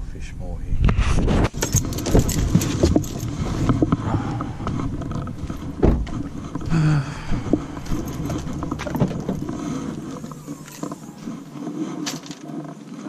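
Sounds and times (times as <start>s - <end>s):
heavy thumps: 1.3s - 12.3s
clicks and knocks in a car: 1.5s - 11.1s.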